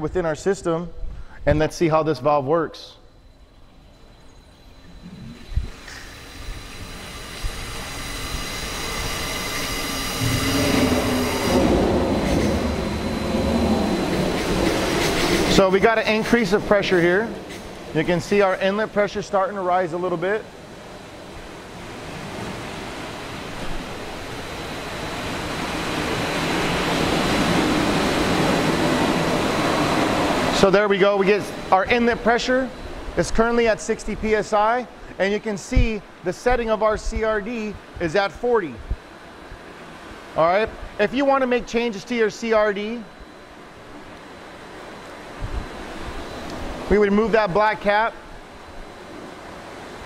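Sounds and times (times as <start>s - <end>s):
high whine: 0.0s - 50.0s
water rushing through pipes: 3.2s - 19.2s.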